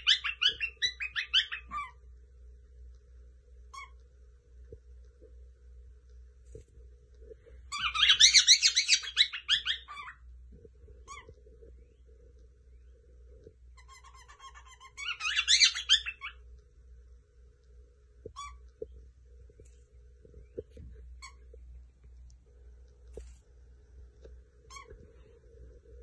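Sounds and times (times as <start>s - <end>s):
cockatiel chirping: 0.0s - 2.0s, 3.7s - 4.0s, 7.7s - 10.2s, 11.0s - 11.4s, 13.8s - 16.4s, 18.3s - 18.7s, 24.7s - 25.0s.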